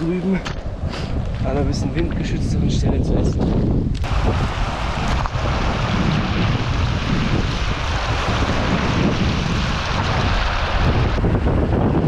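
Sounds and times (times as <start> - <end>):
wind buffeting microphone: 0.0 - 12.0
river rushing over stones: 4.1 - 11.4.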